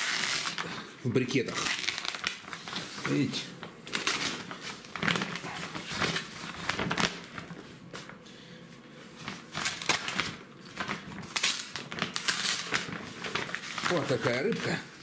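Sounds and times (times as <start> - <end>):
paper sack rustling and crinkling: 1.4 - 8.2, 9.1 - 15.0.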